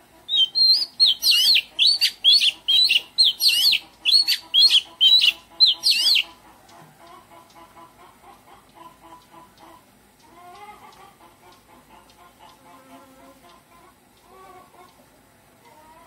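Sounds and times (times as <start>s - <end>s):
songbird singing whistled phrases: 0.3s - 6.3s.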